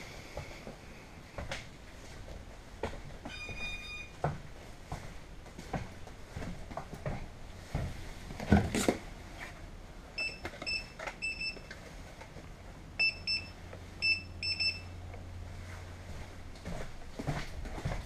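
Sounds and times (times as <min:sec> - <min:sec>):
high-pitched electronic alarm beeps: 0:03.3 - 0:04.2, 0:13.0 - 0:14.9.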